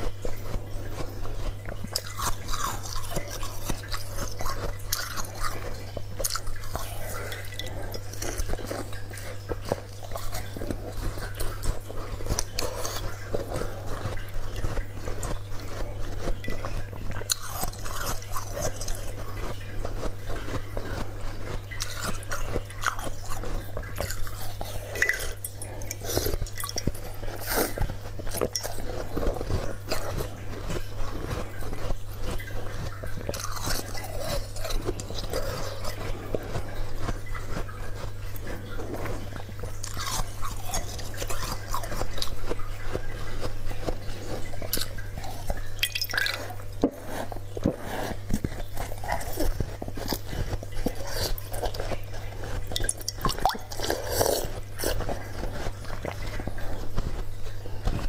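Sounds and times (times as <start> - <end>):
chewing crunchy ice: 0.0 - 58.0
steady low hum: 0.0 - 58.0.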